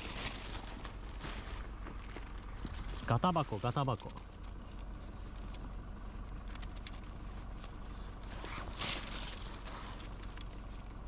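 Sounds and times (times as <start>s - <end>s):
plastic bag rustle: 0.0s - 5.6s, 6.4s - 10.8s
low background hum: 0.0s - 11.0s.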